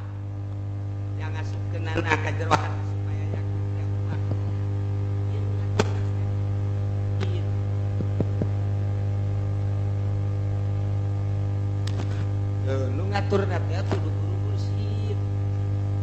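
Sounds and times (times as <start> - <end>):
electrical mains hum: 0.0 - 16.0
sharp click: 5.8 - 6.1, 11.8 - 12.3.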